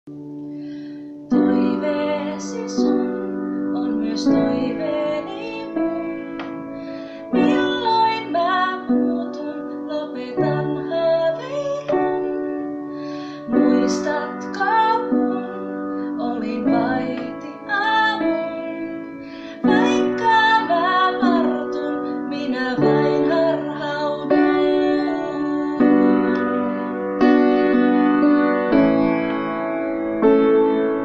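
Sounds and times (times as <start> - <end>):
woman singing: 1.3 - 6.6, 7.2 - 12.6, 13.4 - 27.1
electric keyboard chords: 10.5 - 31.0.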